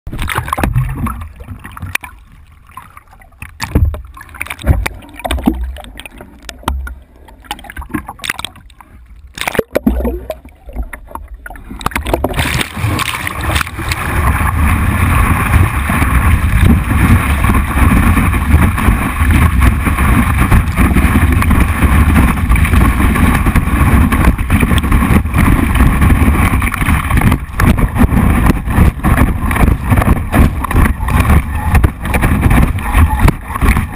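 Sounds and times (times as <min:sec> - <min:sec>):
rush of water: 0:00.1 - 0:33.9
water splashing and sloshing: 0:00.1 - 0:33.9
wind buffeting camera: 0:11.8 - 0:33.9.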